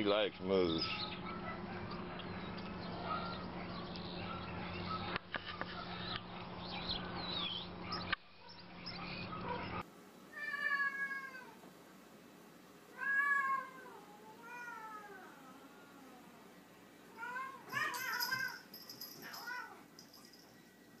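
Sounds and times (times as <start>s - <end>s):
cat meowing: 10.3s - 11.6s, 12.9s - 16.4s.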